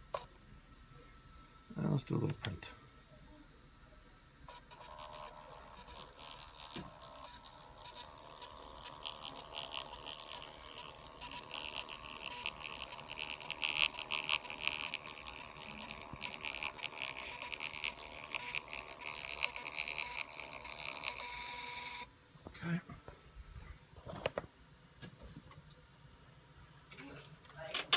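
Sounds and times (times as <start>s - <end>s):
thermal printer buzzing: 4.4s - 22.1s.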